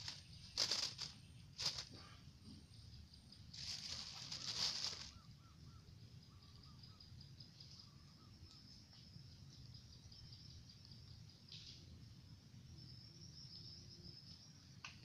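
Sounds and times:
brief rustle: 0:00.0 - 0:02.0, 0:03.6 - 0:05.1
faint chirps: 0:00.0 - 0:15.0
insects trilling: 0:00.0 - 0:15.0.

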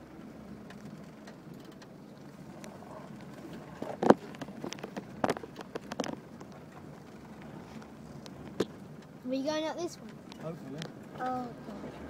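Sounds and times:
vehicle knocks and rattles: 0:00.0 - 0:09.3
vehicle running noise: 0:00.0 - 0:12.0.

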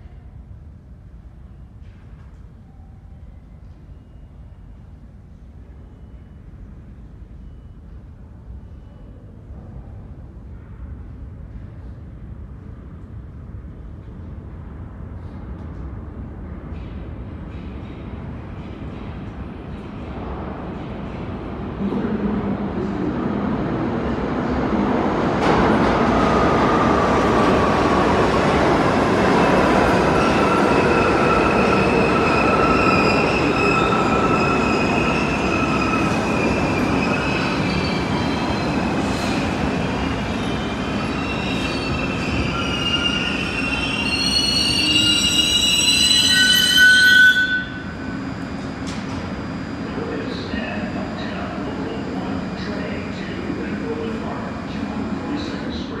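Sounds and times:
high-pitched wheel squeal: 0:41.1 - 0:48.0.

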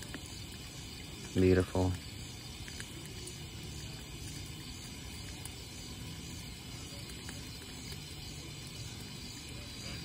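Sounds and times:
outdoor background hiss: 0:00.0 - 0:10.0.

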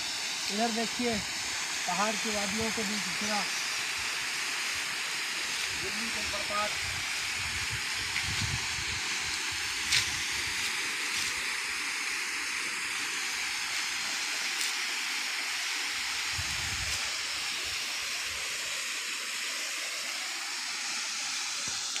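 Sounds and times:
waterfall rushing: 0:00.0 - 0:16.4.

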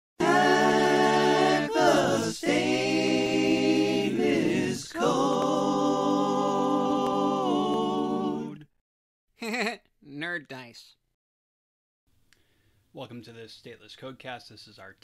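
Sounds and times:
voices singing a cappella: 0:00.2 - 0:08.8.

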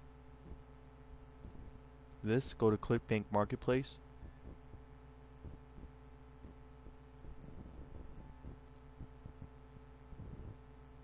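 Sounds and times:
faint electrical hum: 0:00.0 - 0:11.0
soft regular ticks: 0:08.0 - 0:09.5.

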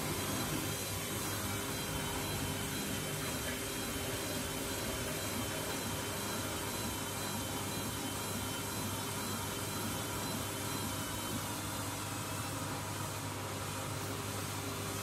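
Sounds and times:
washing machine spinning: 0:00.0 - 0:15.0.

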